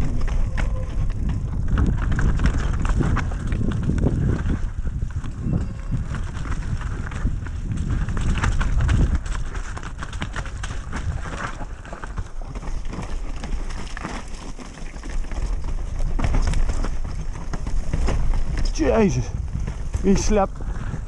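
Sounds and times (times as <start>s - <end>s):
bike rattling over rocks: 0.0s - 21.0s
wind rumbling on microphone: 0.0s - 21.0s.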